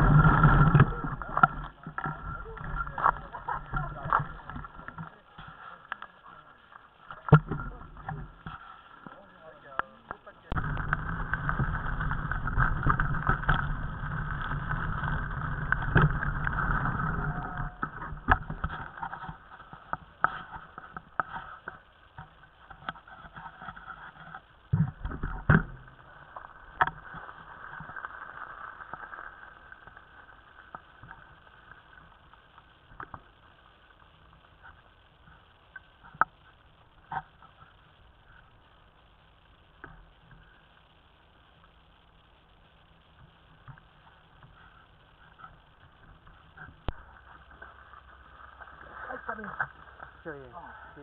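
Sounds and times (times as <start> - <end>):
bike knocks and rattles over stones: 10.1 - 29.2
rushing noise with low rumble: 10.5 - 19.0.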